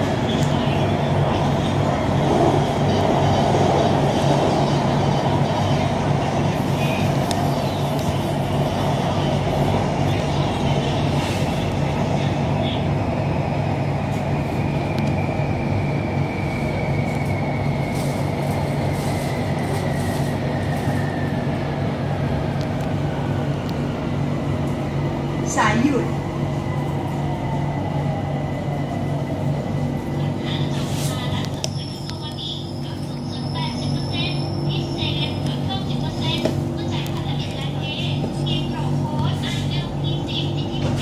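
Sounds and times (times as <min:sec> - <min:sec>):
train car rumble and hum: 0:00.0 - 0:41.0.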